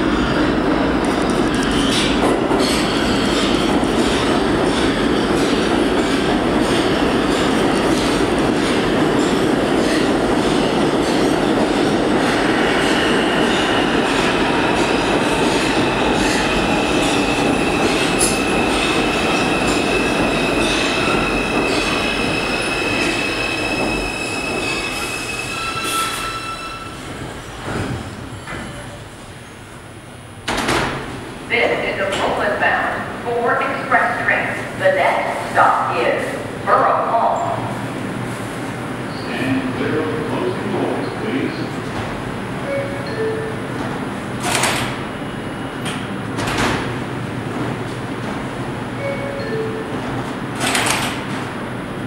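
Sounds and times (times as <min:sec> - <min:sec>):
train wheels rumbling on rails: 0:00.0 - 0:52.0
high-pitched brake squeal: 0:19.4 - 0:27.1.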